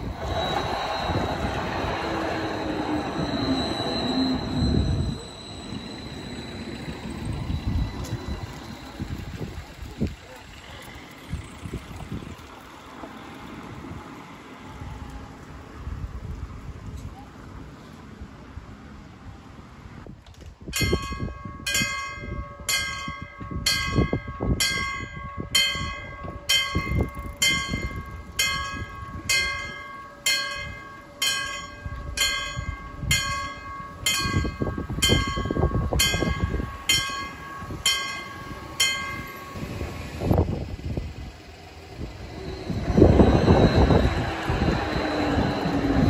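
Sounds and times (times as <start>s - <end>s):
light rail train approaching: 0.0s - 46.0s
level crossing warning bell: 0.1s - 9.8s, 20.8s - 40.4s.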